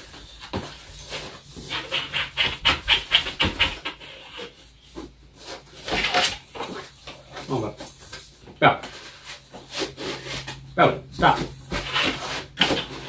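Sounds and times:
cardboard box rustling and scraping: 0.0 - 7.4, 8.9 - 13.0.

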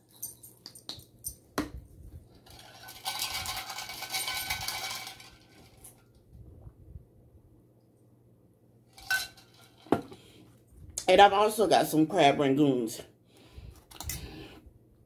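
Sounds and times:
spoon clinking in metal tumbler: 2.6 - 6.0, 9.0 - 9.7.

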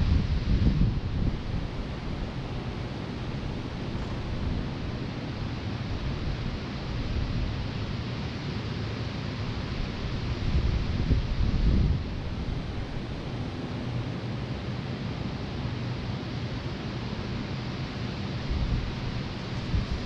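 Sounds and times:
wind rumbling on microphone: 0.0 - 8.1, 9.4 - 14.2, 18.3 - 20.0
fans rushing air: 0.0 - 20.0.

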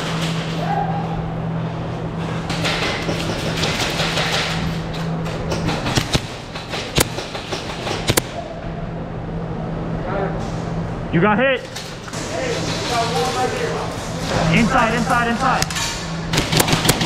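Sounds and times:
low steady hum: 0.0 - 17.0
airsoft pistol shots: 5.8 - 8.4, 16.3 - 17.0.

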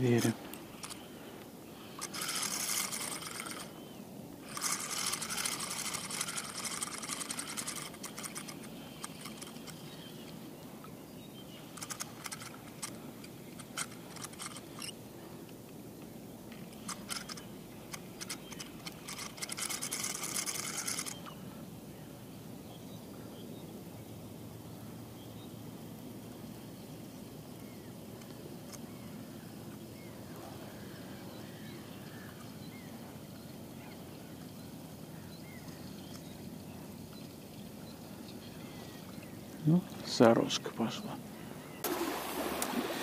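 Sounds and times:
spinning reel whirring clicks: 0.2 - 1.1, 1.9 - 10.4, 11.6 - 15.0, 16.5 - 21.4.

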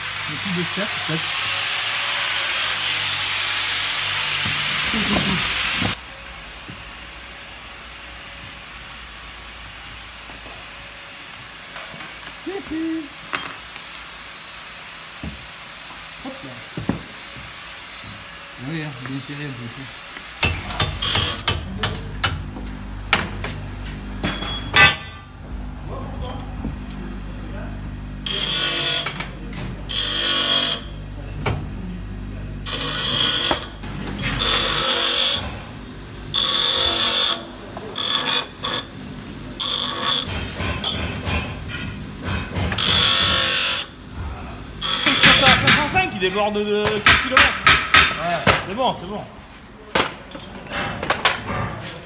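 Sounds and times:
grinder motor hum: 0.0 - 6.0, 25.4 - 41.0, 42.7 - 45.8
hand tool clicking and knocking: 46.8 - 48.6.

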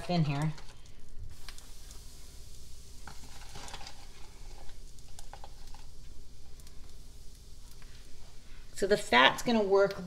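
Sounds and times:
fat sizzling in a skillet: 0.0 - 10.0.

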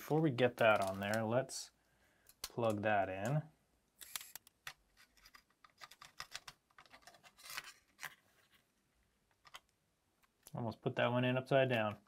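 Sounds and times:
small clicks of cable handling: 2.2 - 3.4, 9.3 - 10.6.

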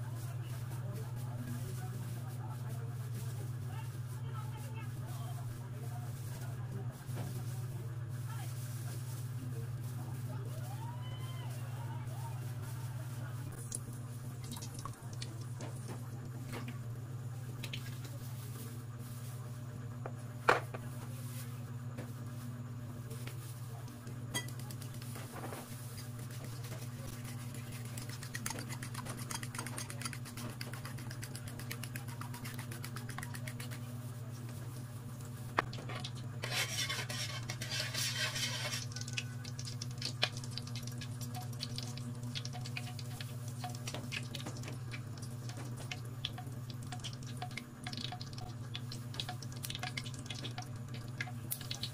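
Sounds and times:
gas stove low hum: 0.0 - 51.9
oil crackling in a wok: 13.6 - 16.4, 23.4 - 34.1, 35.3 - 51.9.

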